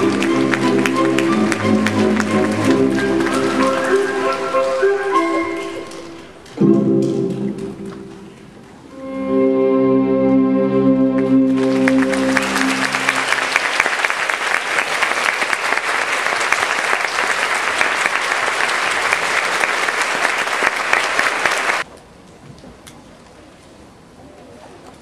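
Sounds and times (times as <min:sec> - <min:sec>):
audience applauding: 0:00.0 - 0:08.6, 0:11.2 - 0:21.9
orchestra final chord: 0:08.9 - 0:13.6.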